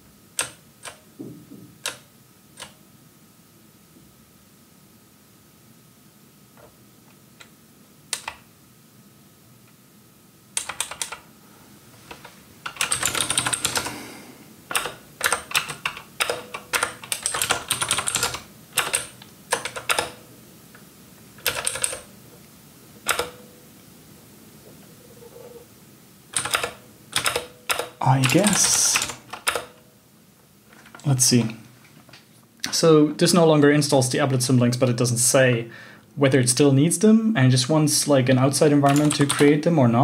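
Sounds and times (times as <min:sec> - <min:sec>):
computer keyboard clicking: 0:00.4 - 0:01.0, 0:08.1 - 0:08.4, 0:10.6 - 0:11.2, 0:12.1 - 0:14.0, 0:14.7 - 0:20.2, 0:21.4 - 0:22.1, 0:26.3 - 0:29.8, 0:38.8 - 0:39.5.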